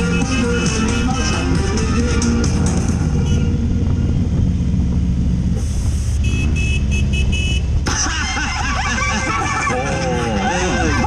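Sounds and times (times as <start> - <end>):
motorcycle engine drone: 0.0 - 11.0
wind rumble: 2.1 - 9.2.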